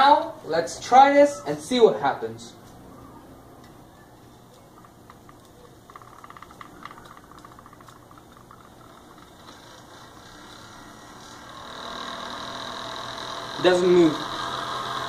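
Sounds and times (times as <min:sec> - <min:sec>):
rapid rattle of small clicks: 0:04.3 - 0:10.8
small motor whirring: 0:04.8 - 0:15.0.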